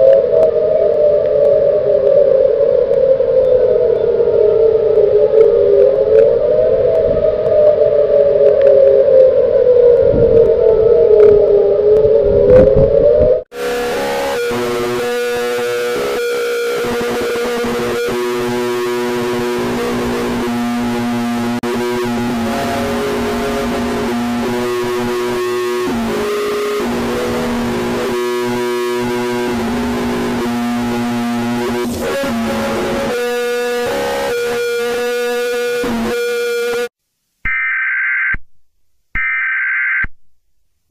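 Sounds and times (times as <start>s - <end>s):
distorted electronic alarm: 13.5s - 36.9s, 37.5s - 38.4s, 39.2s - 40.1s.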